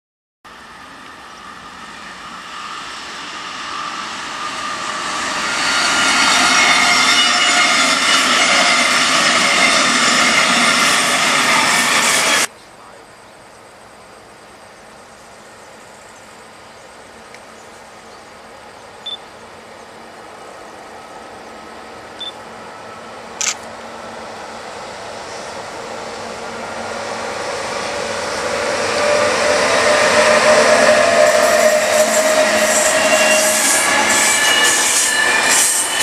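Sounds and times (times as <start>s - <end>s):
passenger train passing: 0.5s - 36.0s
high whining tones: 26.1s - 36.0s.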